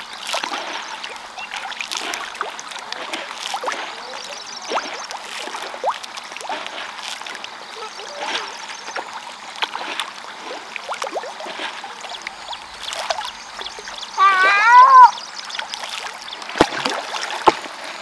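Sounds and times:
fish splashing and slurping: 0.0s - 18.0s
high-pitched wavering cry: 14.2s - 15.2s.

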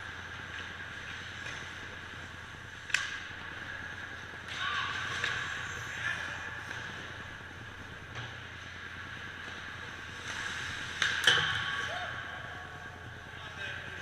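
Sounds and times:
sharp crack: 2.8s - 3.4s
ice skates scraping on ice: 9.4s - 11.6s.

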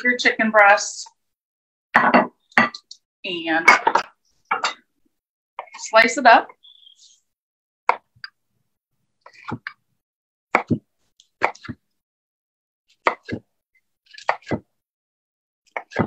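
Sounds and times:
knife slicing and knocking on board: 10.5s - 11.8s, 13.0s - 13.5s.

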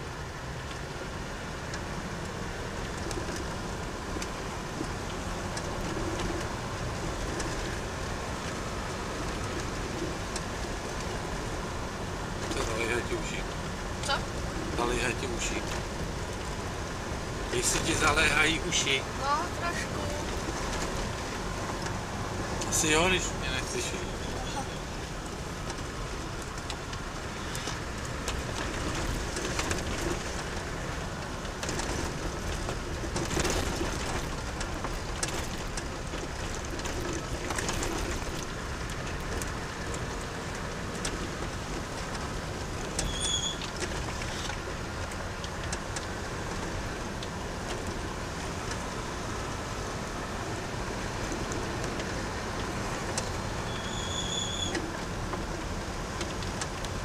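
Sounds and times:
car engine and tyres rumbling: 0.0s - 57.0s.

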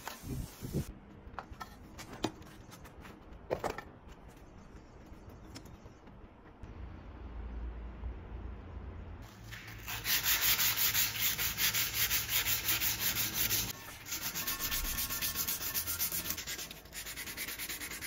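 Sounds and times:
sandpaper rubbing on steel blade: 9.5s - 18.0s.

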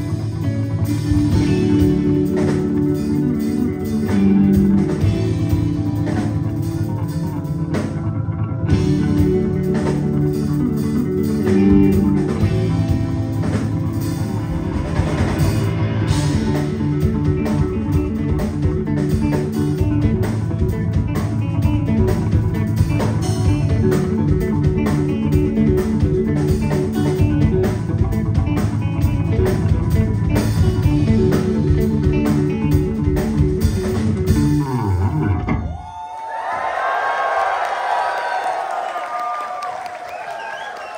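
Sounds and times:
rock band playing: 0.0s - 35.9s
crowd cheering and whistling: 35.4s - 40.9s.

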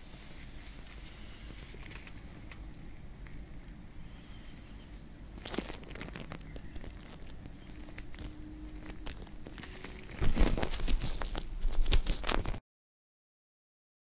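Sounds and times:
small clicks and scrapes: 0.4s - 2.6s, 5.4s - 12.6s
gloved fingers crinkling wires: 4.9s - 12.6s.

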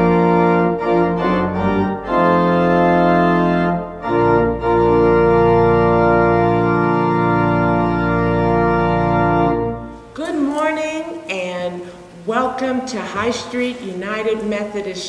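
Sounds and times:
organ playing sustained chords: 0.0s - 10.4s.

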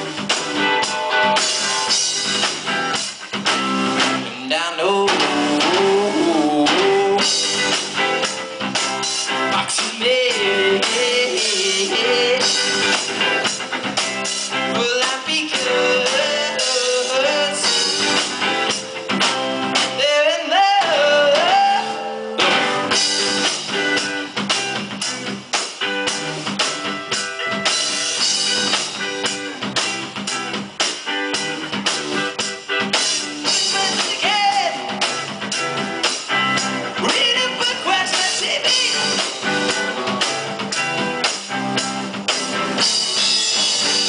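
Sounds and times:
rock band playing live: 0.0s - 44.0s
man singing: 4.2s - 7.7s, 9.4s - 13.2s, 14.7s - 18.3s, 19.8s - 22.3s, 33.5s - 35.1s, 37.0s - 39.4s.

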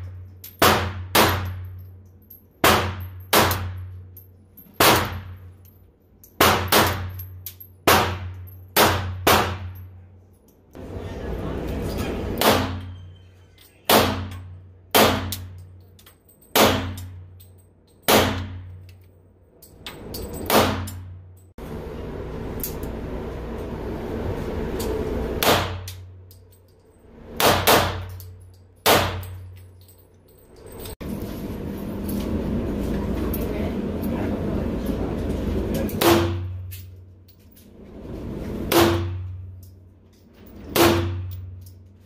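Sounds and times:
pistol shots ringing indoors: 0.5s - 1.8s, 2.6s - 4.0s, 6.4s - 9.8s, 12.4s - 13.0s, 13.9s - 15.6s, 16.4s - 17.1s, 18.0s - 18.8s, 20.4s - 21.1s, 27.3s - 29.4s, 35.9s - 36.6s, 38.7s - 39.3s, 40.7s - 41.5s.

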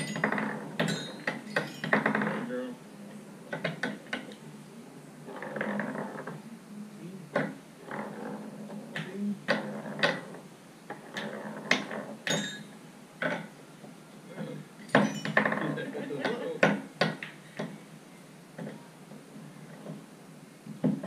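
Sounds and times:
wooden balls knocking on floor: 0.0s - 2.5s, 8.9s - 12.6s.

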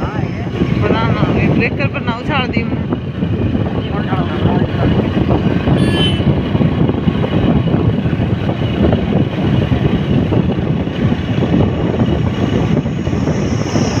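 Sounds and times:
road vehicle rumble: 0.0s - 14.0s
wind buffeting microphone: 0.0s - 14.0s.

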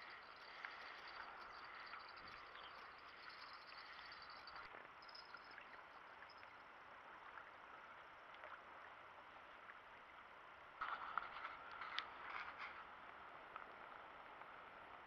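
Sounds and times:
faint high twittering: 0.0s - 7.6s
soft outdoor hiss: 0.0s - 15.0s.

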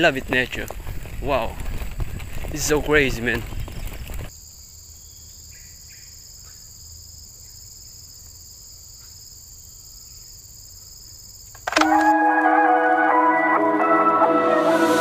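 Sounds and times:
insect chorus: 0.0s - 12.1s.

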